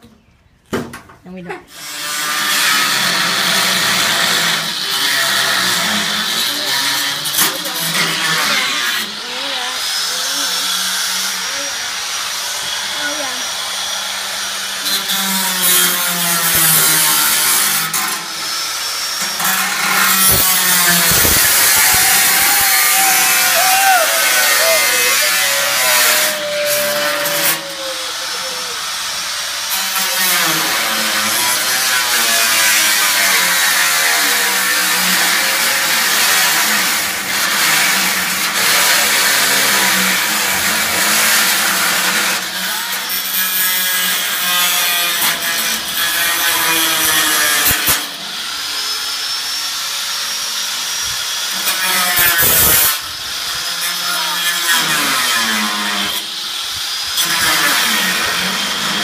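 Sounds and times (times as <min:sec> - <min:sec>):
power tool cutting: 0:01.7 - 0:59.0.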